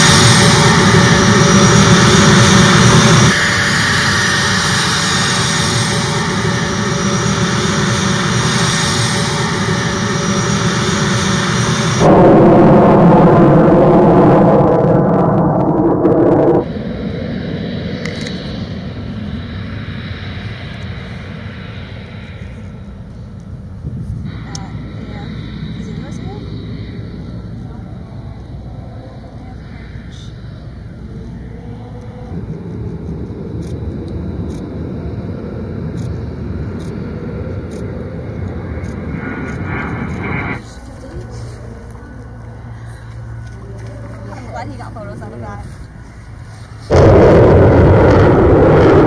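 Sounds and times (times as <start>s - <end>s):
jet engine rumble and whine: 0.0s - 49.0s.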